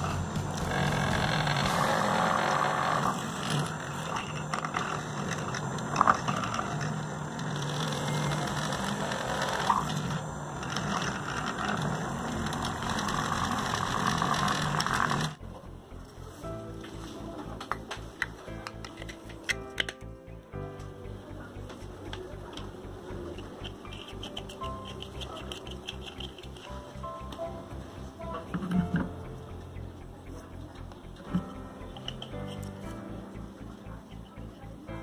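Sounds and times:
electric drill boring plastic: 0.0s - 15.4s.

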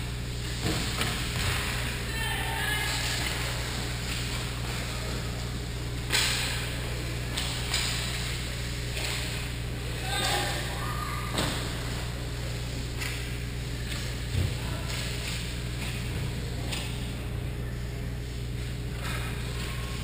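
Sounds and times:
steady low hum: 0.0s - 20.0s
faint shouts: 2.1s - 3.1s, 10.0s - 11.4s
hockey sticks and puck clacking: 6.1s - 9.5s, 12.9s - 14.2s.

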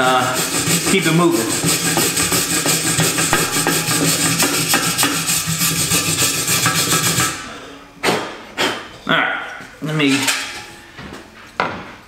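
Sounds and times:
sharp knocks: 3.3s - 5.2s.

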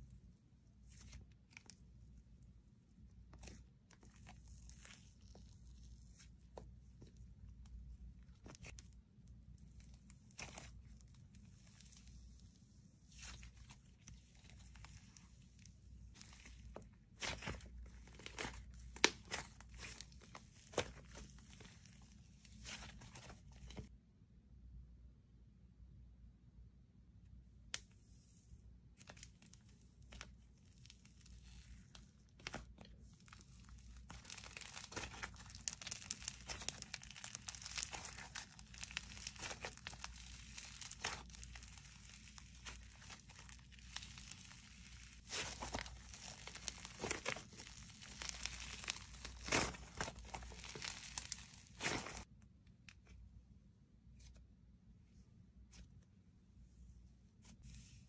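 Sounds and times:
slime crackling and popping: 13.1s - 21.9s, 30.2s - 52.3s.

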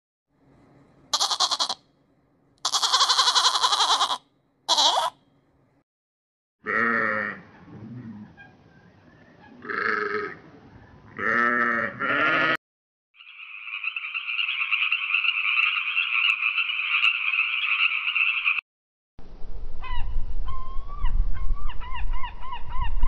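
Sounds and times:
goat or sheep bleating: 1.1s - 1.8s, 2.6s - 5.2s, 6.6s - 7.4s, 9.6s - 10.4s, 11.2s - 12.6s.

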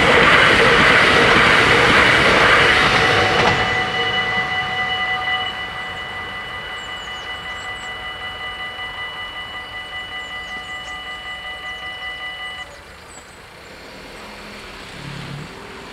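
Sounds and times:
level crossing bells ringing: 0.0s - 13.7s
faint bird chirps: 3.6s - 14.3s.

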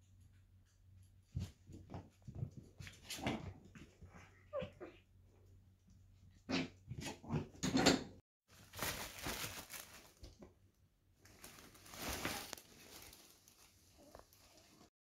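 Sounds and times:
rustling and crinkling: 8.5s - 14.9s.

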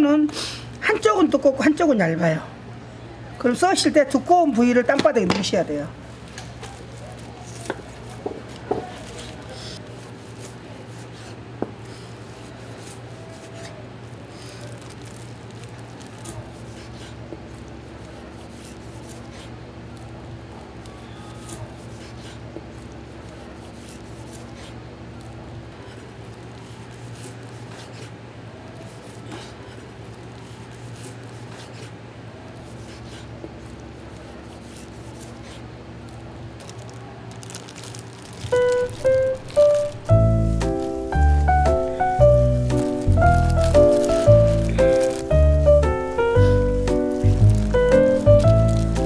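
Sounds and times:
steady low hum: 37.8s - 49.0s
background music with bright notes: 38.6s - 49.0s.

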